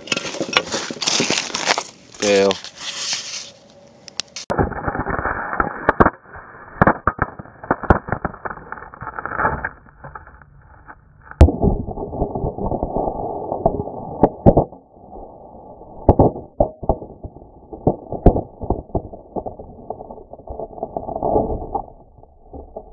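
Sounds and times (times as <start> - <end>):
scraping: 0.0 - 22.9
brick piece hitting camera: 4.4 - 10.4, 16.0 - 21.9
scattering debris: 4.4 - 22.9
bricks being smashed: 4.5 - 10.4, 16.0 - 20.8.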